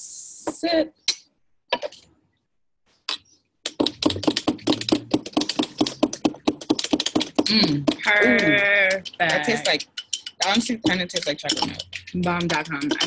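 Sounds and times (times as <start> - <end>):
spoon clinking against ceramic mug: 8.4 - 13.0.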